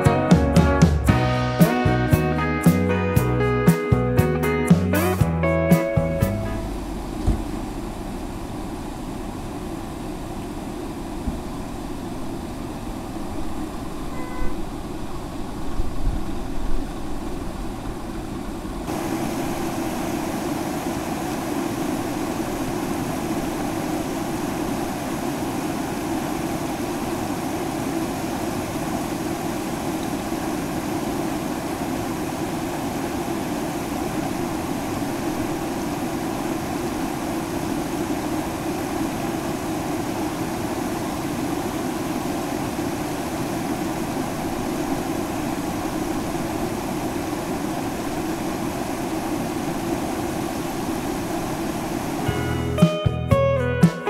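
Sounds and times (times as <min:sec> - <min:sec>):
knocks from road bumps: 0:07.2 - 0:07.7.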